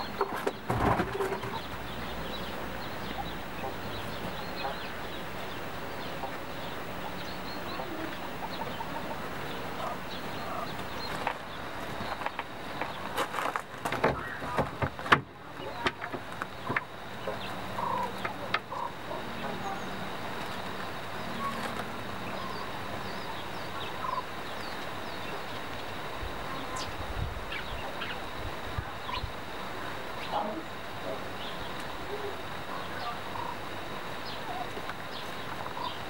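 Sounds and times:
quails chirping: 0:00.0 - 0:36.0
steady background hum: 0:00.0 - 0:36.0
birds pecking on paper: 0:10.7 - 0:18.7, 0:20.2 - 0:22.2.

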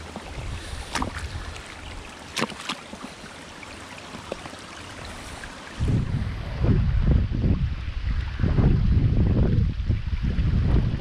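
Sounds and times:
wind rumble on microphone: 0:00.0 - 0:02.1, 0:05.0 - 0:11.0
shoes stepping on rocks: 0:00.0 - 0:03.2
shallow river flowing over stones: 0:00.0 - 0:05.9.

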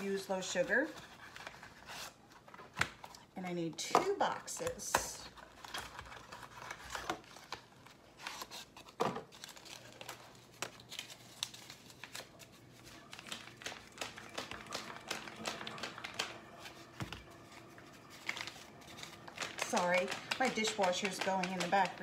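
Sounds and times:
paper packet crinkling: 0:05.2 - 0:22.0.

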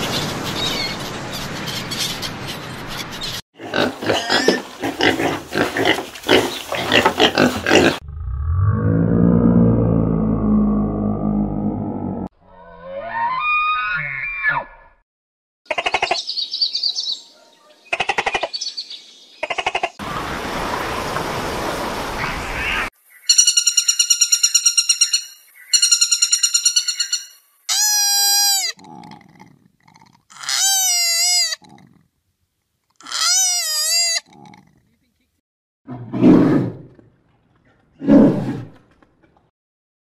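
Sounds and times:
woodpecker fast high calls: 0:23.2 - 0:28.8.

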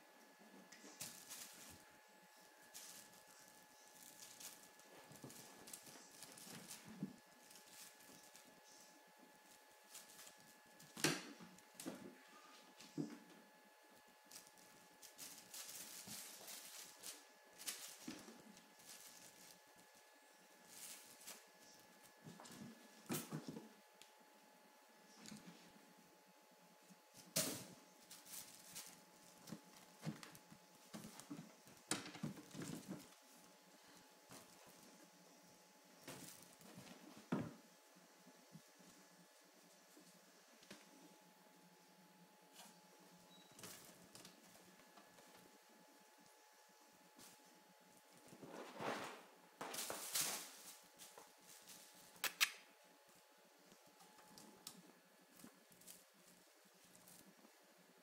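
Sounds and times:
kittens scratching on plastic mesh: 0:00.9 - 0:08.6, 0:14.2 - 0:23.8.

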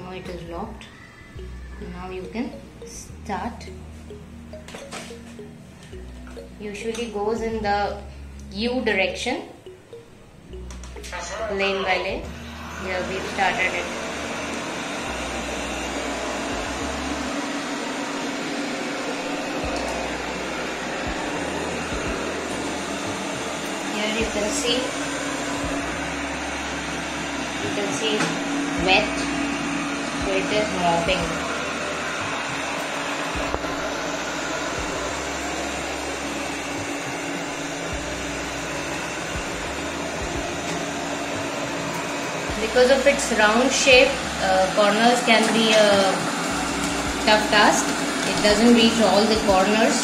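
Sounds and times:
robot vacuum whirring: 0:12.2 - 0:50.0.

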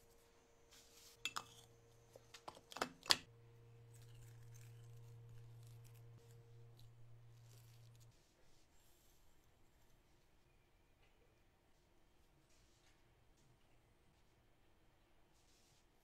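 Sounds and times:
faint low hum: 0:00.0 - 0:15.4
spoon clinking against bowls: 0:01.2 - 0:01.7.

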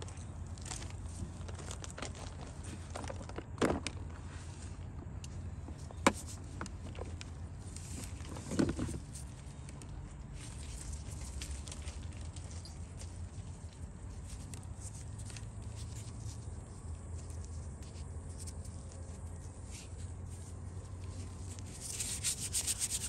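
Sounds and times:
low background hum: 0:00.0 - 0:23.0
clay lumps knocking and scraping: 0:01.2 - 0:09.3.

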